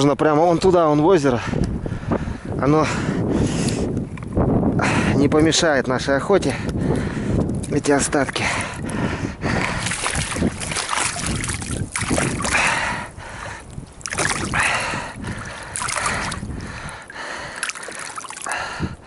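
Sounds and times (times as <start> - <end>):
water sloshing and splashing: 9.4 - 18.8.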